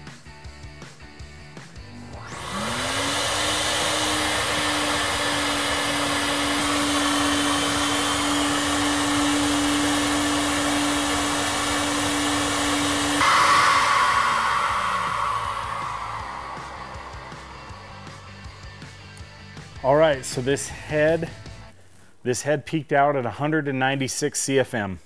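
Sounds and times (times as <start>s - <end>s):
blower motors rushing air: 2.0s - 19.7s
motor hum: 2.1s - 19.0s.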